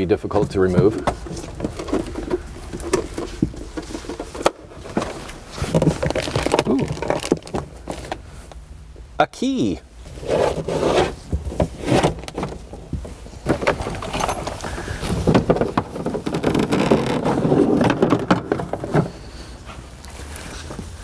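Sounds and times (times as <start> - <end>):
cable rustling and scraping: 10.1 - 21.0.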